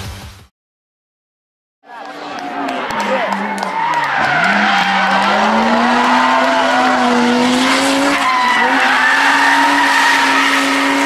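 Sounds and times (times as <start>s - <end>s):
rally car engine at high revs: 2.5s - 11.0s.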